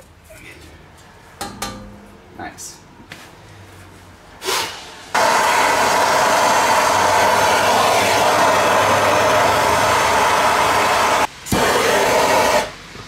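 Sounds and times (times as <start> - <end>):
gas torch hissing: 4.4 - 13.0.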